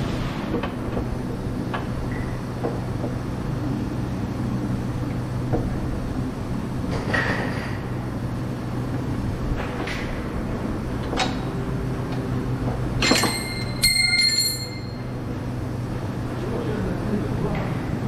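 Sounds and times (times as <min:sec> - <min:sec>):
steady background hum: 0:00.0 - 0:18.0
metal brace clanking: 0:13.0 - 0:15.0.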